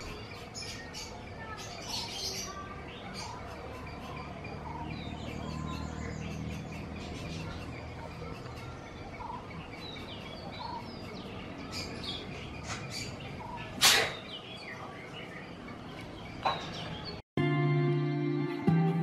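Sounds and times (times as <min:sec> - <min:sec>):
birds chirping and calling: 0:00.0 - 0:17.2
music: 0:17.4 - 0:19.0.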